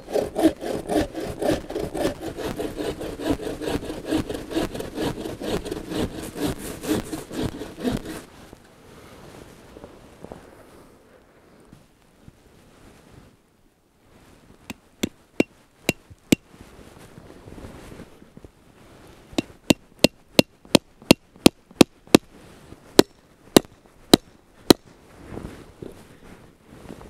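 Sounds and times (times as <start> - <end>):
hatchet chopping log: 0.1 - 8.0, 23.0 - 24.9.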